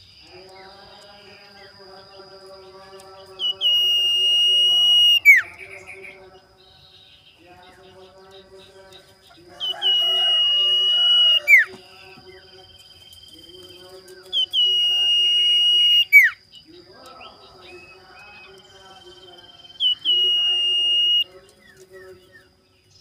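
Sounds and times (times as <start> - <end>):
bird whistled call: 3.4 - 6.2, 9.6 - 11.8, 14.3 - 16.4, 19.4 - 21.3.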